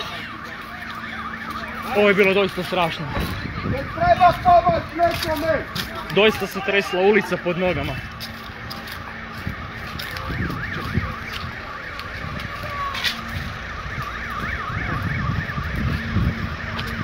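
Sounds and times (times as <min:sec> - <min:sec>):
electronic alarm siren warbling: 0:05.4 - 0:17.0
steady low rumble: 0:07.4 - 0:17.0.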